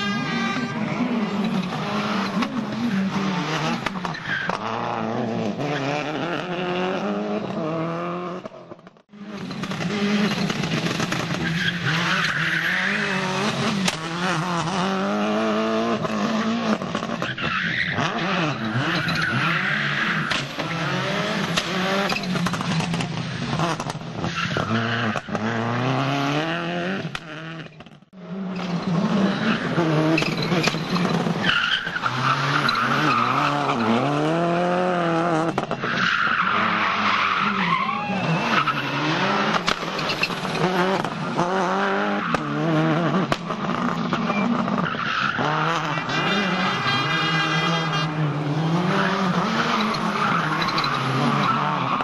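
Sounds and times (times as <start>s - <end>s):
tyre squeal on tarmac: 0.0s - 6.3s, 9.2s - 14.7s, 17.1s - 21.2s, 21.8s - 23.0s, 23.6s - 25.7s, 28.5s - 34.5s, 35.4s - 41.4s, 43.7s - 48.3s, 48.9s - 52.0s
rally car engine revving: 0.0s - 52.0s.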